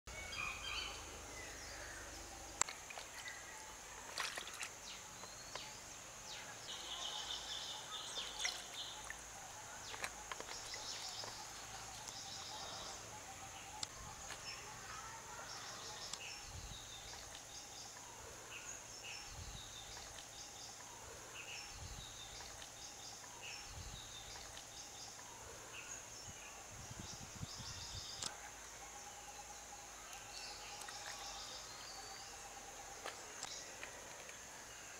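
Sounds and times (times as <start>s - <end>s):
birds chirping: 0.1s - 28.4s
prawns handled in water: 2.6s - 4.8s.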